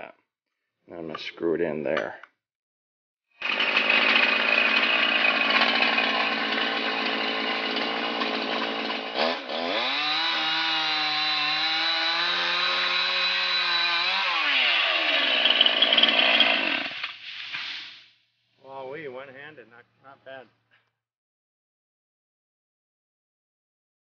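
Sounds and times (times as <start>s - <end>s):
chainsaw cutting branch: 3.4s - 17.2s.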